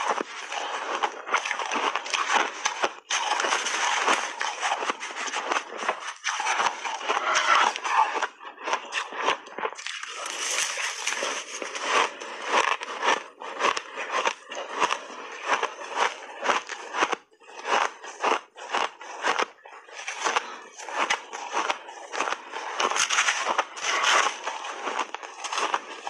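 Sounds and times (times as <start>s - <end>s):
ice crunching while chewed: 0.0s - 26.0s
spoon scraping ice: 3.0s - 13.3s, 19.9s - 26.0s.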